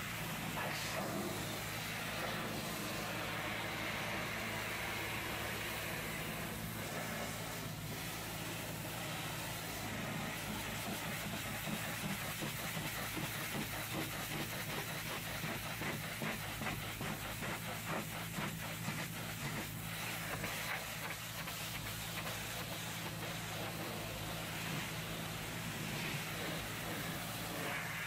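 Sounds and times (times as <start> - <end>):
pressure washer spraying metal: 0.0 - 28.0.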